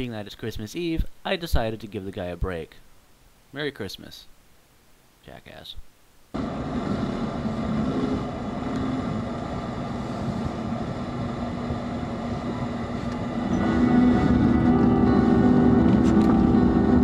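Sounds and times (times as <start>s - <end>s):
car engine and road noise: 6.4s - 17.0s.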